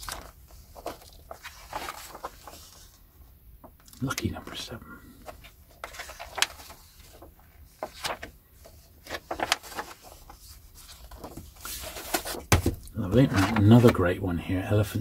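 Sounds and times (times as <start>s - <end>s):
paper rustling: 0.0s - 3.0s, 5.1s - 14.1s
light knocks of books: 11.2s - 12.9s.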